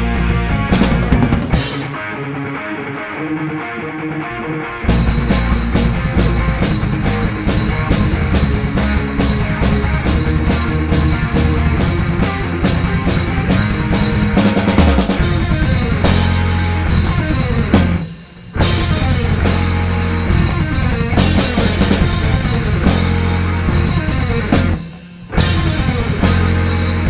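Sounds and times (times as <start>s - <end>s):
drum kit beat: 0.0s - 2.3s, 4.9s - 27.0s
electric guitar: 0.0s - 27.0s.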